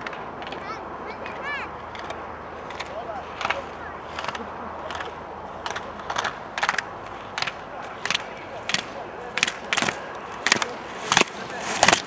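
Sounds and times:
ski edges scraping snow: 9.8 - 12.0.

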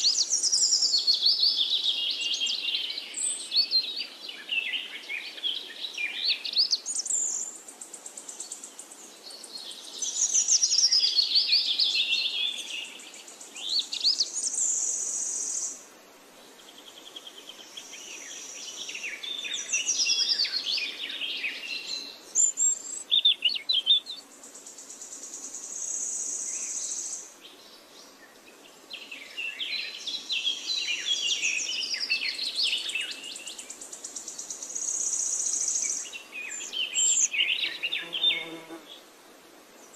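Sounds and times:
birds chirping and singing: 29.0 - 38.8.

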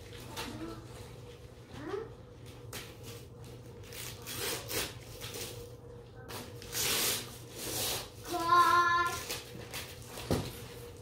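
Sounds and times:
wrapping paper rustling and tearing: 2.4 - 11.0.

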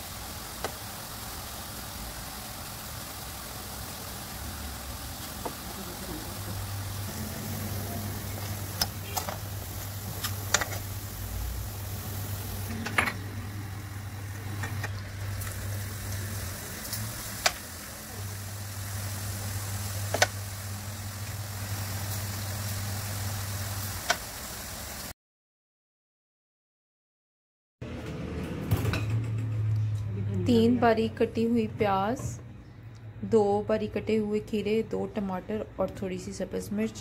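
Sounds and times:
batter deep-frying in oil: 0.0 - 25.1.

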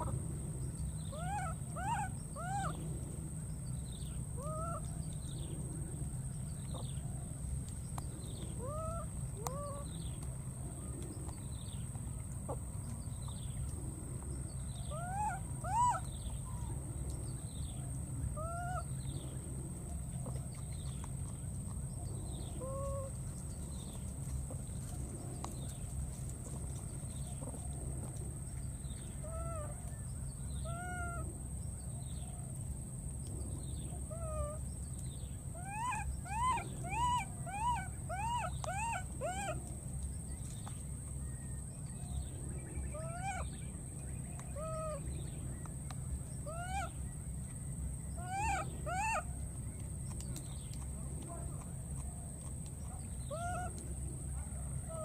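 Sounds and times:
baby monkey crying: 35.6 - 39.6, 48.2 - 49.2.

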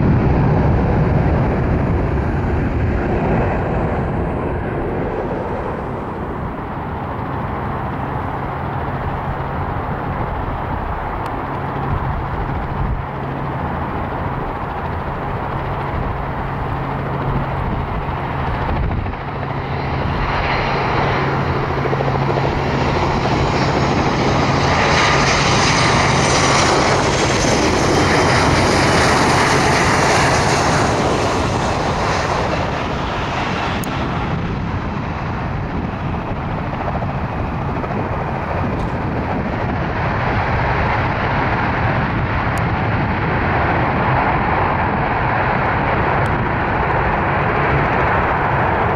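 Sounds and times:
high fan whine: 0.0 - 48.9
jet airliner rumble: 0.0 - 48.9.

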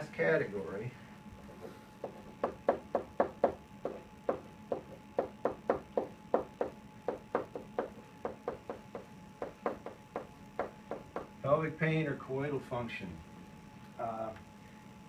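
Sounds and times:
pen tapping on whiteboard: 2.0 - 11.3.

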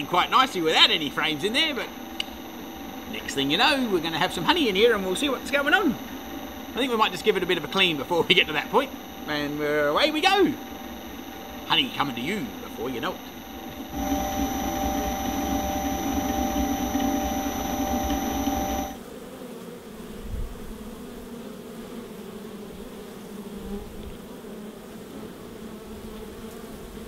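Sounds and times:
honey extractor motor whine: 0.0 - 19.0
honey bees buzzing: 0.0 - 20.1.

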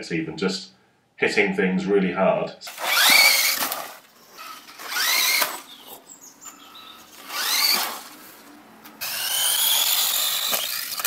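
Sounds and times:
toy car electric motor whining: 2.7 - 6.0, 6.7 - 11.0.

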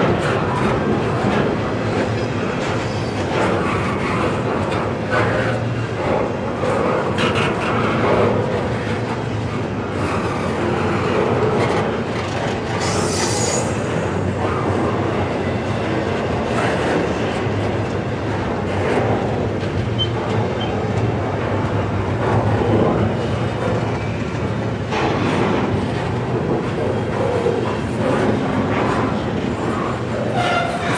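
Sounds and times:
freight train wheels rumbling: 0.0 - 30.9
high wheel squeal: 12.8 - 14.3.

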